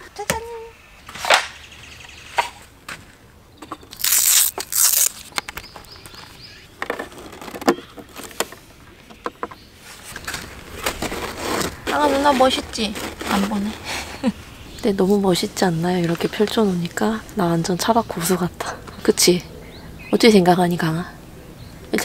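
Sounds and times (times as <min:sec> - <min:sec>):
camping gear clicks and knocks: 0:03.6 - 0:13.7.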